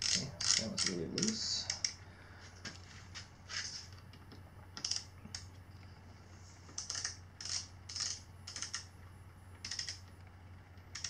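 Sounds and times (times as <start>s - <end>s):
torque wrench clicking: 0.0s - 2.0s, 6.8s - 8.9s, 9.6s - 10.0s.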